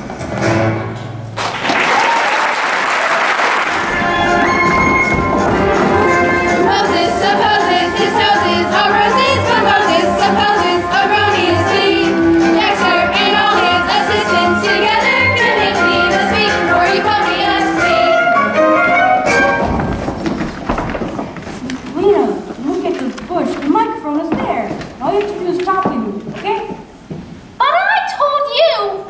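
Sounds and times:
voices singing with vibrato: 3.8 - 19.5
instrumental accompaniment: 3.8 - 20.4.

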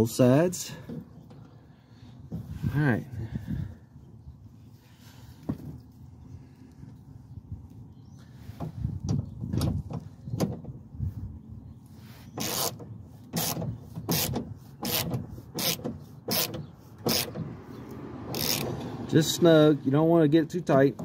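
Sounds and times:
ratchet strokes: 12.4 - 17.4, 18.3 - 18.7.

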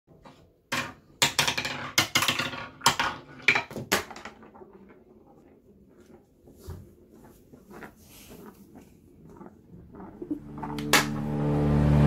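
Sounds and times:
wooden ball clattering down ramp: 0.1 - 5.5, 10.6 - 11.2
ball rolling through plastic track: 0.1 - 11.2.

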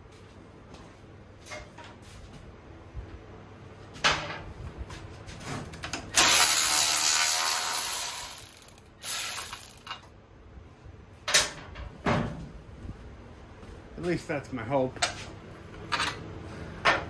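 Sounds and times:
power tool running: 6.1 - 10.0
sharp metal clicks and knock: 8.2 - 10.1.

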